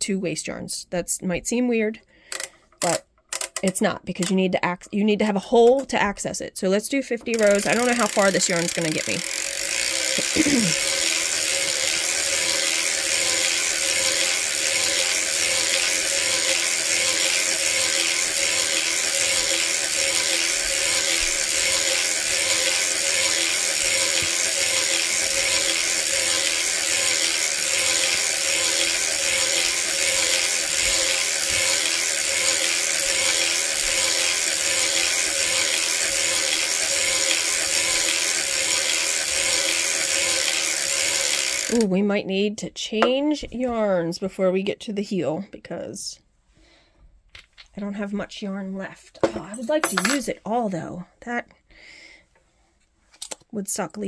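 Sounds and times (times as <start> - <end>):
knitting machine clattering: 2.3 - 4.5, 7.2 - 41.8, 49.3 - 50.3.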